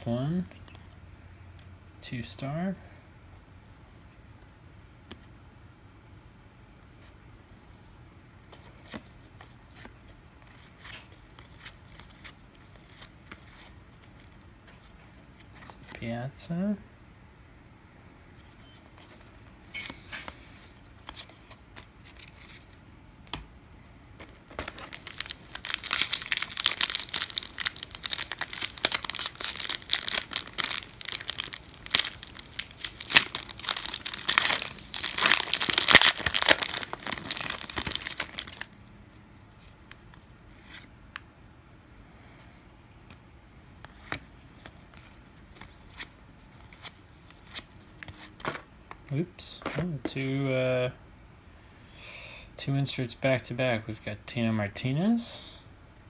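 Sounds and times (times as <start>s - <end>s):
wrapper crinkling: 24.5s - 38.7s.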